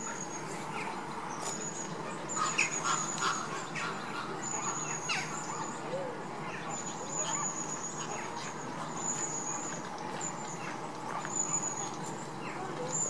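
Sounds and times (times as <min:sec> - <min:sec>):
flamingos calling: 0:02.3 - 0:05.7.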